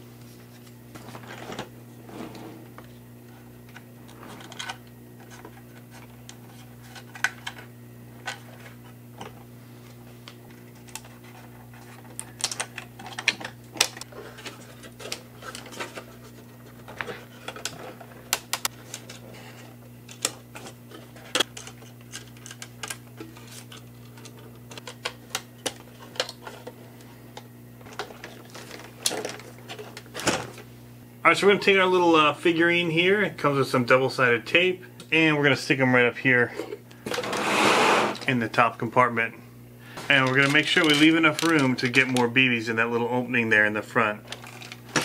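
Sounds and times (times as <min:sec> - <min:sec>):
steady low hum: 0:00.0 - 0:45.0
plastic parts clicking and tapping: 0:40.1 - 0:42.2.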